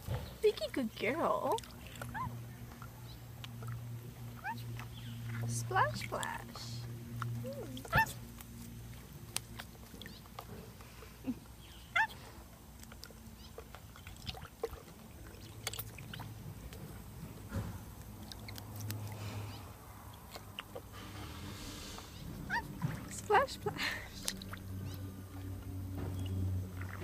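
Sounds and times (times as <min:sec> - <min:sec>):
water splashing and dripping: 0:00.0 - 0:27.0
bird chirping: 0:04.2 - 0:05.5, 0:11.3 - 0:12.2, 0:26.0 - 0:26.6.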